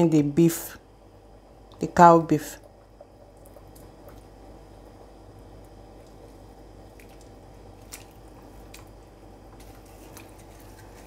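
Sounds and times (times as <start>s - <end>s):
wet squelches: 2.6s - 11.0s.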